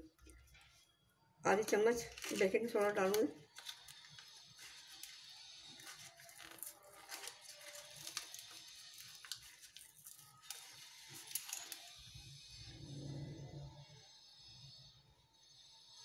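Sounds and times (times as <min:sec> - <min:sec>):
packet rustling: 0:01.5 - 0:12.0
faint clicks and handling: 0:02.1 - 0:12.0.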